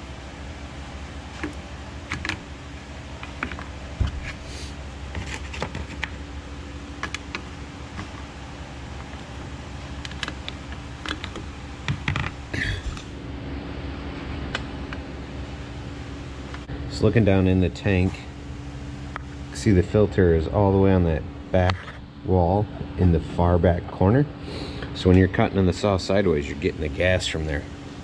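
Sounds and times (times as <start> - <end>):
steady background hum: 0.0 - 28.0.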